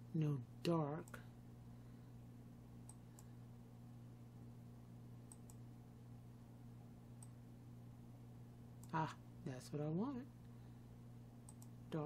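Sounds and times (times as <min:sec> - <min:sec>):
low steady hum: 0:00.0 - 0:12.0
computer mouse clicks: 0:02.8 - 0:03.3, 0:05.3 - 0:05.6, 0:07.2 - 0:07.4, 0:11.4 - 0:11.8.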